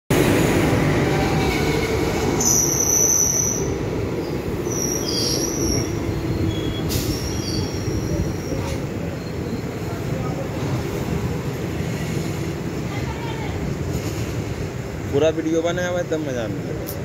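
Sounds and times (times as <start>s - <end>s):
train rumbling over rails: 0.1s - 17.0s
high-pitched train squeals: 1.1s - 10.2s.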